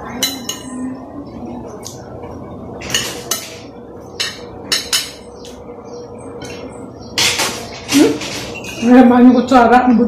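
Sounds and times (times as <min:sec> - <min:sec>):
cutlery clinking on glass plate: 0:00.2 - 0:00.8, 0:02.8 - 0:05.3.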